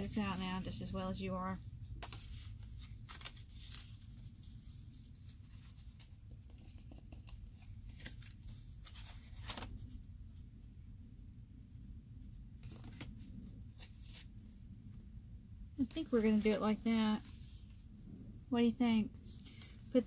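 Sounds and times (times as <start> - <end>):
low steady hum: 0.0 - 20.0
paper cards rustling: 1.9 - 10.0, 12.6 - 14.3, 15.8 - 17.7.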